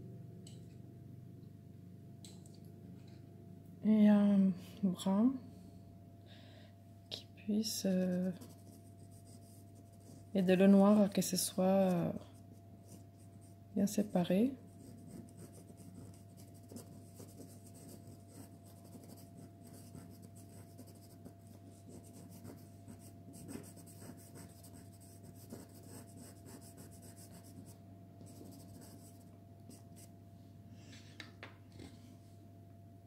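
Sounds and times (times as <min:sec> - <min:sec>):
pencil scratching on card: 0:14.8 - 0:30.1.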